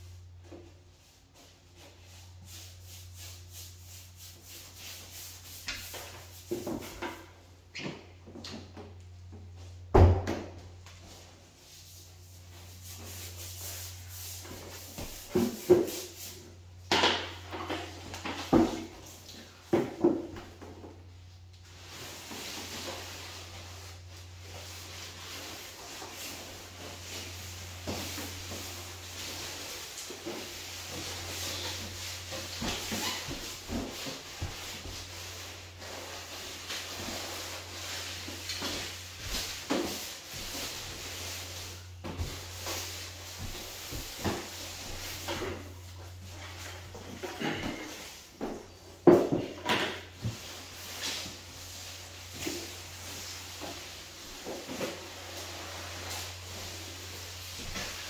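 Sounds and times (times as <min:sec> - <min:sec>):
brush strokes on floorboards: 0:01.0 - 0:06.7, 0:11.1 - 0:16.5, 0:21.7 - 0:47.2, 0:50.2 - 0:58.0.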